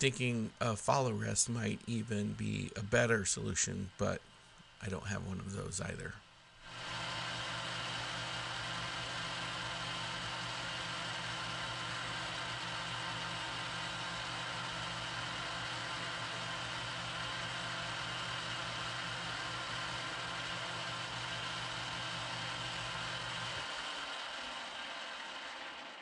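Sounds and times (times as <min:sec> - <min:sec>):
lathe motor humming: 0:06.7 - 0:26.0.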